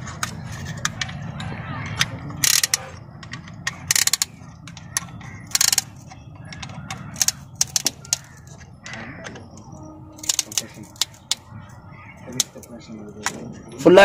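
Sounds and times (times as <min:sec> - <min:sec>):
ratchet clicking: 0:02.0 - 0:08.6, 0:10.2 - 0:11.4.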